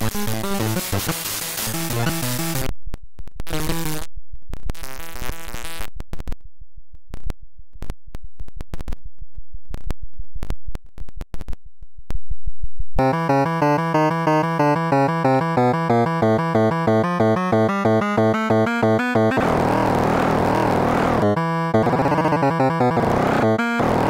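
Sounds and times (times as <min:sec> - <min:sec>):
buzzy synthesized tones: 0:13.0 - 0:24.0.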